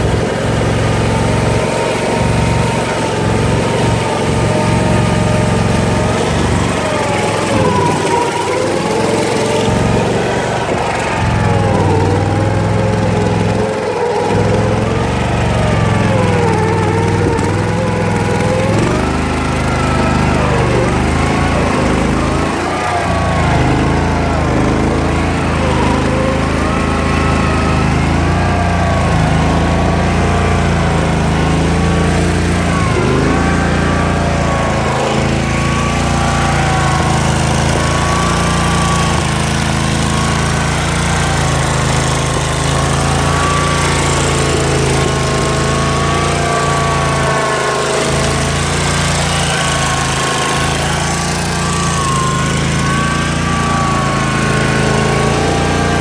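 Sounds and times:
high whine: 0:00.0 - 0:56.0
mower engine running: 0:00.0 - 0:56.0.

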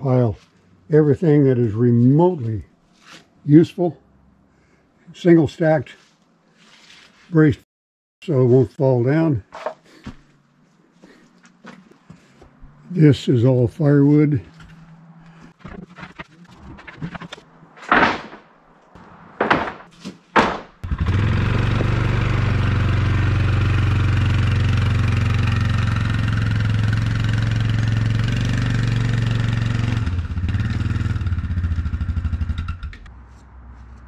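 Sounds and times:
loud knocks: 0:17.8 - 0:20.8
atv engine running: 0:20.8 - 0:33.1.

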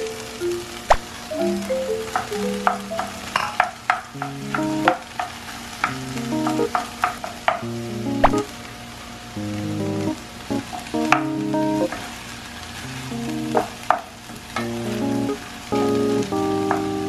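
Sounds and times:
soft background music: 0:00.0 - 0:05.2, 0:05.9 - 0:08.5, 0:09.4 - 0:12.0, 0:14.6 - 0:17.0
food sizzling in a frying pan: 0:00.0 - 0:17.0.

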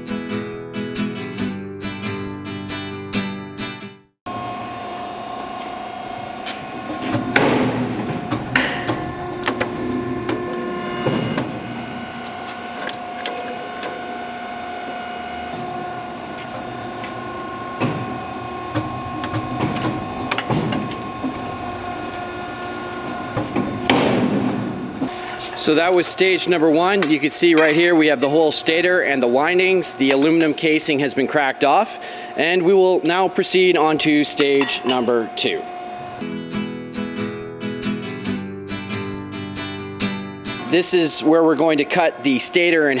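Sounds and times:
crushing machine humming: 0:04.3 - 0:43.0
metal clanks and knocks: 0:06.9 - 0:11.6.

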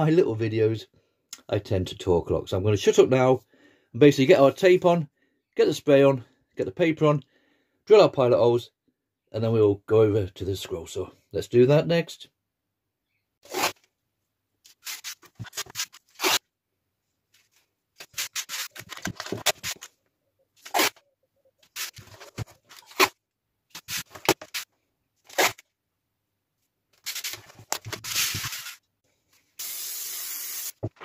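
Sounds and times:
masking tape ripping: 0:13.4 - 0:13.8, 0:14.7 - 0:16.4, 0:20.6 - 0:21.0, 0:25.3 - 0:25.6.

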